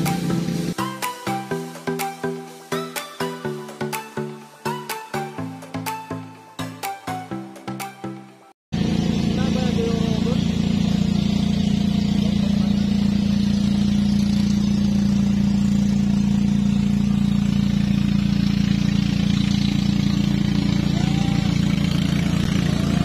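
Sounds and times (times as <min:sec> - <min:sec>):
engine running steadily: 0:00.0 - 0:00.9, 0:08.7 - 0:23.0.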